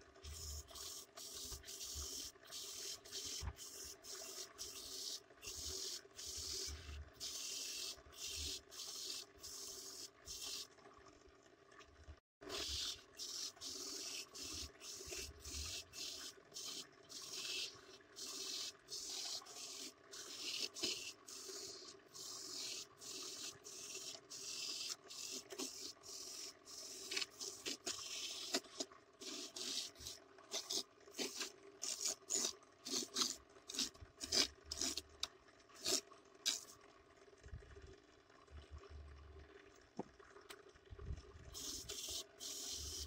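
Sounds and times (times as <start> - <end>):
motor hum: 0.0 - 43.0
grater rasping coconut: 12.4 - 35.2, 35.8 - 36.7.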